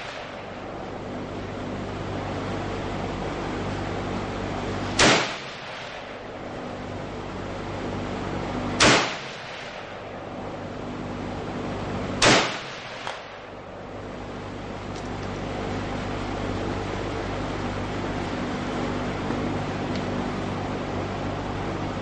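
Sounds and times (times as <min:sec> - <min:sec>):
rifle shots with echo: 0:05.0 - 0:06.2, 0:08.8 - 0:10.2, 0:12.2 - 0:13.5.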